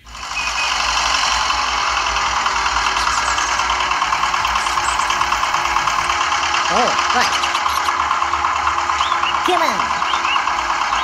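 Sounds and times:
model water pump motor humming: 0.0s - 11.0s.

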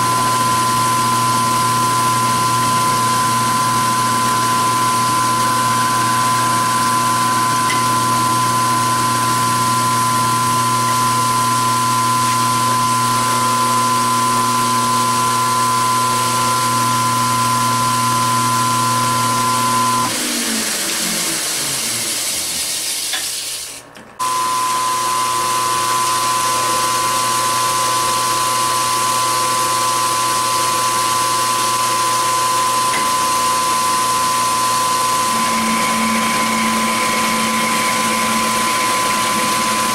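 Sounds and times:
milling machine motor whine: 0.0s - 22.4s, 24.2s - 39.9s
metal cutting noise: 32.7s - 39.9s.

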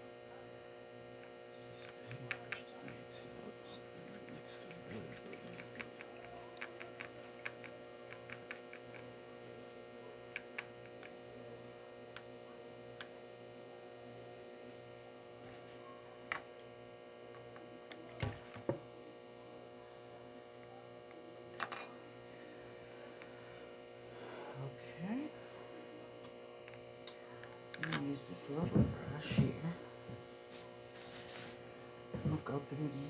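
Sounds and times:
electrical hum: 0.0s - 33.0s
stick stirring paint in palette: 4.2s - 9.1s.

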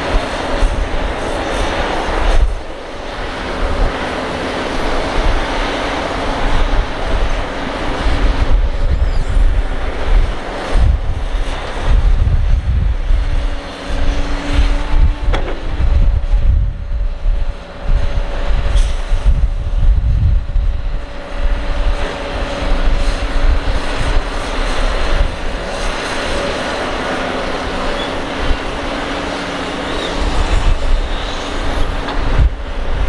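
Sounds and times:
excavator diesel engine humming: 0.0s - 33.0s
low rumbling: 4.8s - 24.4s.

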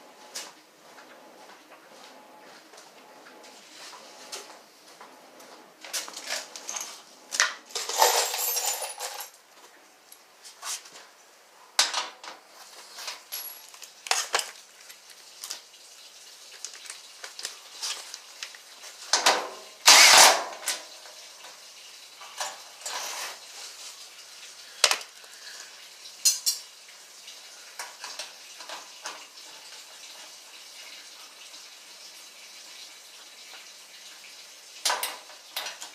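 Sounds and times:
metal hand tools clattering: 7.8s - 9.3s, 19.9s - 20.8s.

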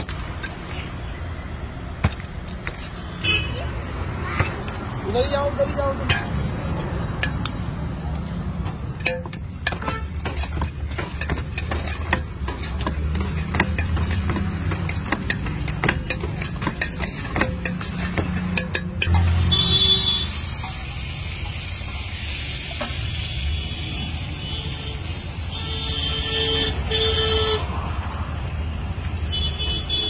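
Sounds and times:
metal spoon clinking on pot: 9.0s - 19.3s.

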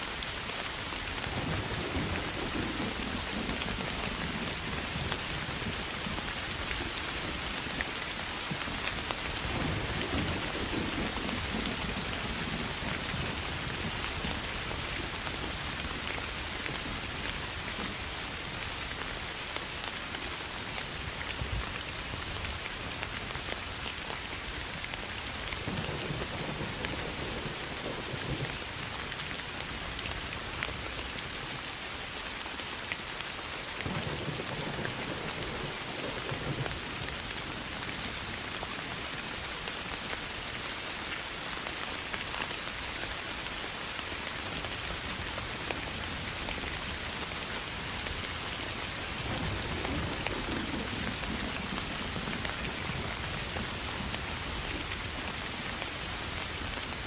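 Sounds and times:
soft rain on grass and leaves: 0.0s - 57.0s
distant thunder rumbles: 9.4s - 23.3s, 25.6s - 28.7s, 33.8s - 37.1s.

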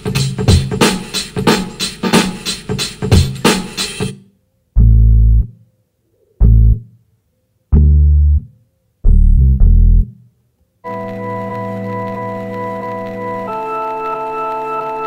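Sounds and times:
drum beat: 0.0s - 4.2s
electric bass low notes: 4.8s - 5.5s, 6.4s - 6.8s, 7.7s - 10.2s.

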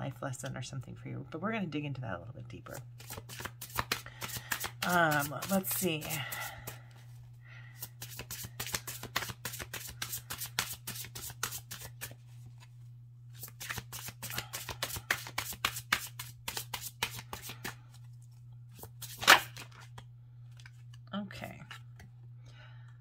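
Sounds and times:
cards being shuffled: 2.7s - 6.8s, 7.8s - 12.7s, 13.4s - 21.0s.

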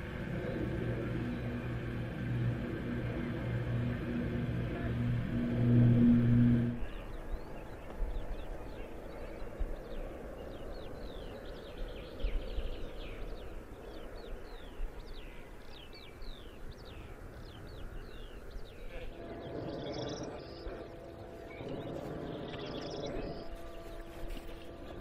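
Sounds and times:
rushing noise: 0.0s - 8.4s
small birds chirping: 0.0s - 25.0s
steady low hum: 0.0s - 25.0s.

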